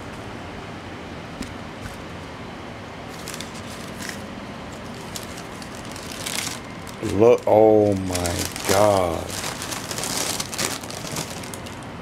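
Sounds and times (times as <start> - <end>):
tissue paper crinkling: 3.1 - 4.2, 4.8 - 11.8.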